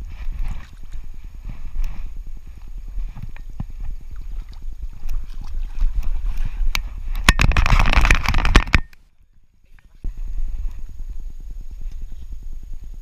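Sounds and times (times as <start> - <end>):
water sloshing: 3.0 - 8.8
camera handling knocks and rubbing: 7.2 - 9.0.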